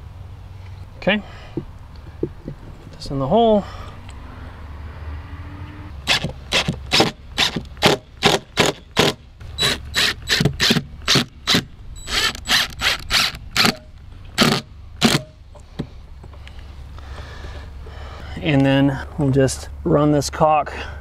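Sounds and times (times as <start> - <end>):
drill driving screws in bursts: 6.0 - 13.8, 14.4 - 15.3.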